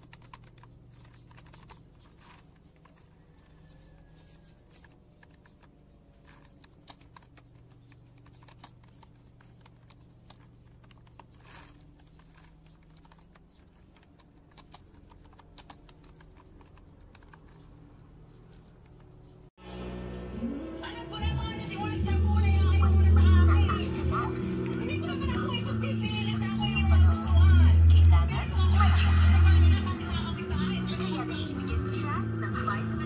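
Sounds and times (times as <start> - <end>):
low hum: 17.7 - 33.0.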